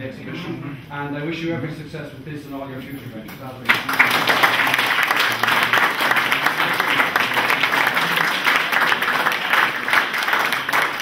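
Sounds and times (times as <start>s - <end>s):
crowd applauding: 3.7s - 11.0s.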